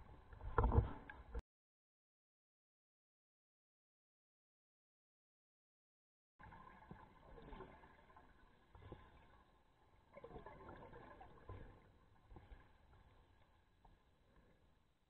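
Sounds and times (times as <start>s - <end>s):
underwater air bubbles gurgling: 6.4s - 12.8s.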